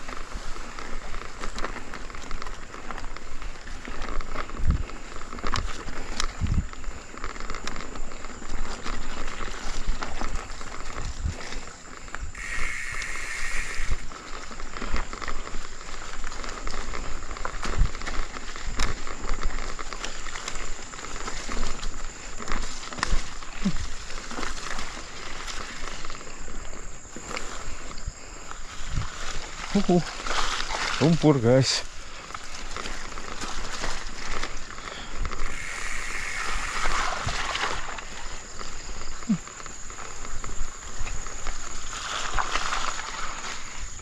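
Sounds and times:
bike knocking and rattling: 0.0s - 13.1s, 13.9s - 44.0s
bike tyres on dirt: 0.0s - 44.0s
high buzz: 12.4s - 14.0s.

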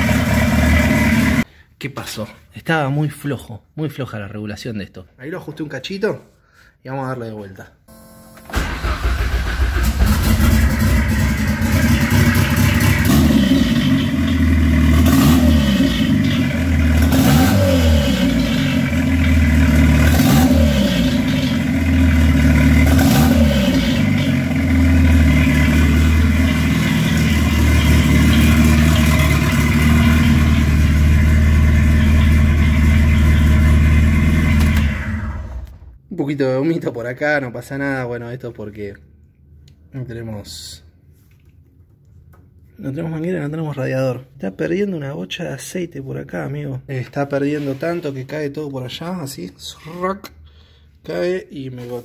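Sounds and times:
car engine revving and idling: 0.0s - 1.4s, 8.9s - 35.8s.

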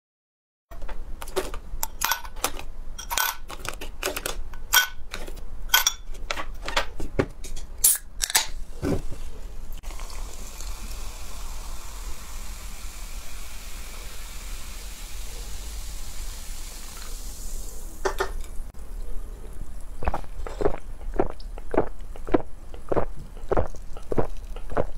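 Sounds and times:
cola pouring into a glass: 9.8s - 15.3s, 16.0s - 17.8s
fizzing hiss: 9.9s - 18.1s.

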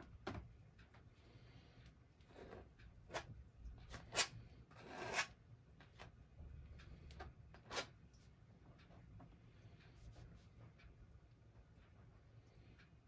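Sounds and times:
palette knife scraping canvas: 3.9s - 5.4s.

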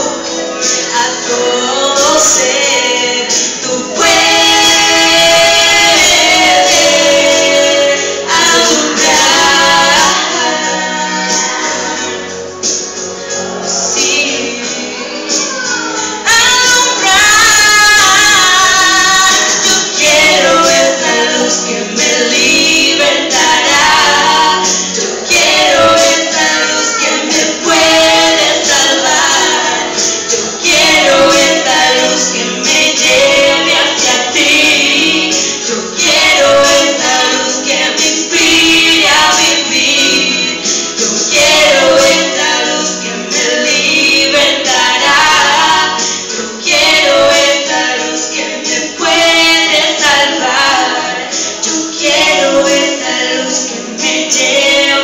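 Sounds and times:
women singing a christian song: 0.0s - 55.0s.

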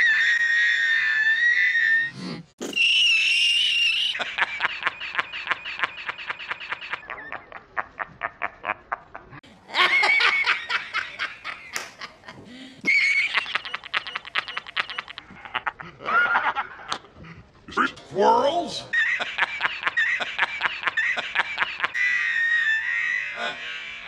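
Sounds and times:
man laughing: 4.1s - 17.0s, 18.9s - 24.0s.

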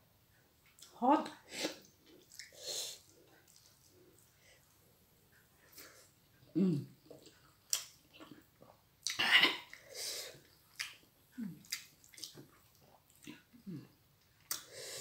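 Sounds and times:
wet mouth clicks and lip smacks: 7.2s - 8.4s, 11.6s - 13.3s, 14.4s - 14.7s.

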